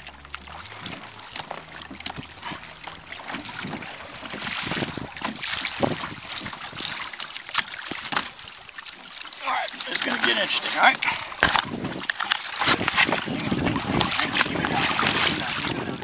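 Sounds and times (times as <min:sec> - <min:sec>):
water slapping against kayak hull: 0:00.0 - 0:16.0
wind buffeting microphone: 0:01.9 - 0:07.0, 0:10.8 - 0:16.0.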